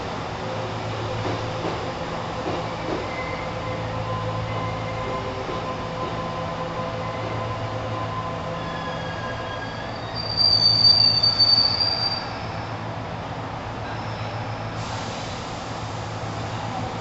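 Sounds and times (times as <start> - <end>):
electric train humming: 0.0 - 10.2
high-pitched brake squeal: 7.0 - 12.8.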